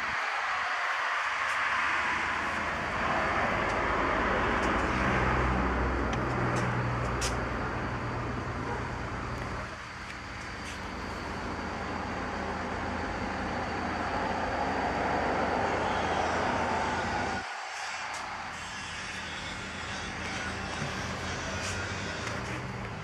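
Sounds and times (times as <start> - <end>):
traffic noise: 0.0 - 23.0
low engine hum: 1.3 - 17.4, 19.5 - 23.0.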